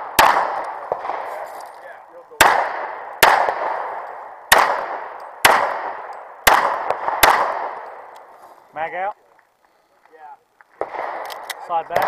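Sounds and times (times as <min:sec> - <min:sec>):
pistol shots with echo: 0:00.0 - 0:01.5, 0:02.2 - 0:08.2, 0:10.8 - 0:12.0.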